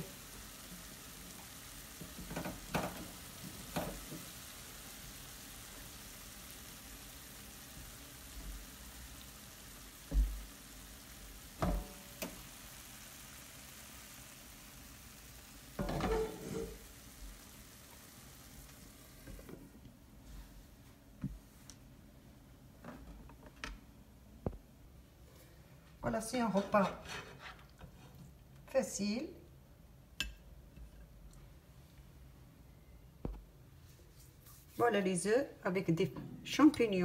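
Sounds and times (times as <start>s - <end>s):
food sizzling in a pan: 0.0s - 19.8s
glass lid lowered onto pan: 15.8s - 16.8s.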